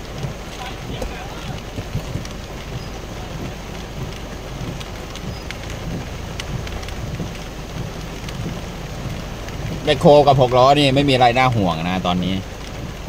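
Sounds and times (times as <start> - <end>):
rain on vehicle roof: 0.0 - 13.0
raindrop ticks: 0.0 - 13.0.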